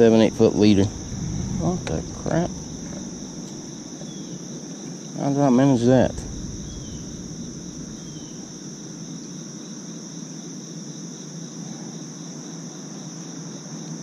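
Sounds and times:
low background rush: 0.0 - 4.6, 5.6 - 9.4
crickets chirping: 0.0 - 14.0.

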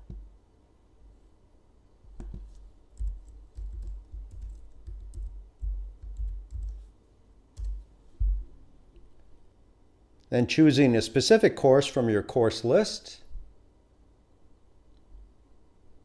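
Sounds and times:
typing on computer keyboard: 2.2 - 6.8, 7.6 - 7.8.

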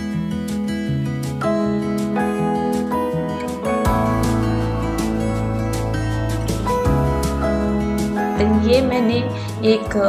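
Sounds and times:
instrumental guitar music: 0.0 - 10.0.

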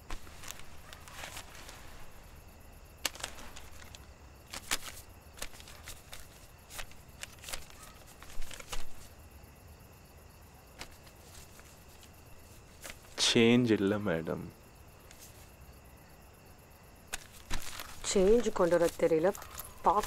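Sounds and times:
paper crinkling and rustling: 0.0 - 9.2, 10.8 - 13.2, 15.1 - 15.5, 17.1 - 20.0.

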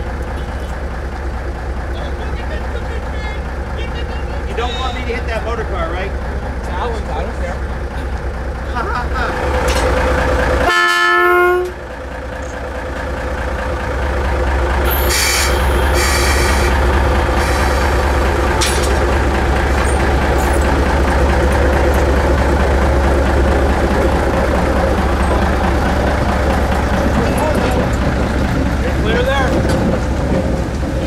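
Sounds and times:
diesel locomotive engine rumble: 0.0 - 31.0
air hissing: 15.0 - 18.2.

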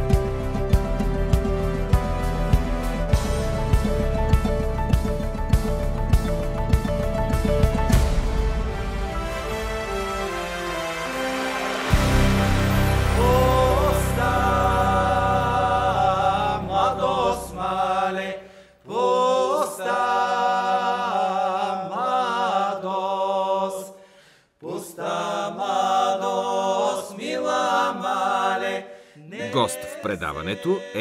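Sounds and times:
vocal group singing a cappella: 11.9 - 31.0.

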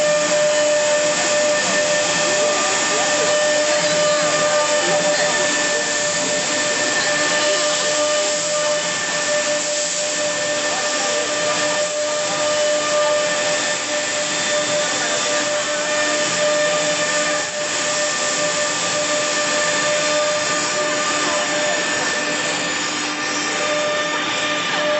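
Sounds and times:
router spindle whine: 0.0 - 24.9
wood cutting hiss: 0.0 - 24.9.

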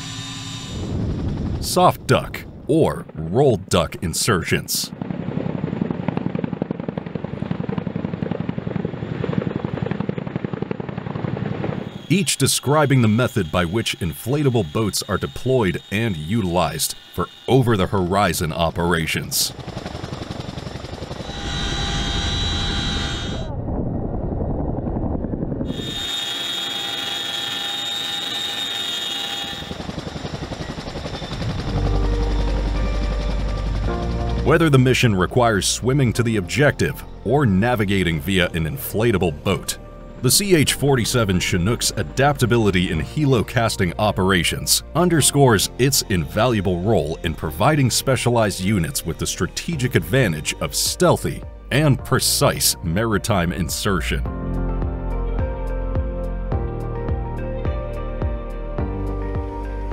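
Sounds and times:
helicopter rotor chopping: 0.0 - 23.7, 24.6 - 54.2
high whine: 11.7 - 48.0.

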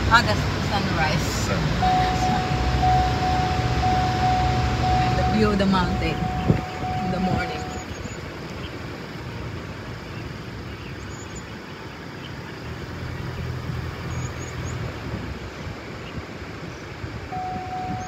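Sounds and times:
road noise: 0.0 - 18.0
vehicle engine rumble: 0.0 - 18.0
steady high tone: 1.2 - 7.9.

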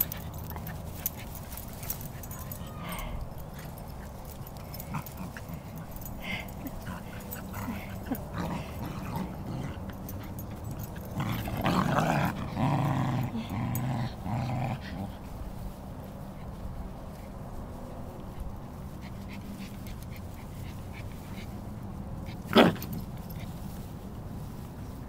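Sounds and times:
dogs play-growling: 0.0 - 15.6, 22.2 - 23.9.

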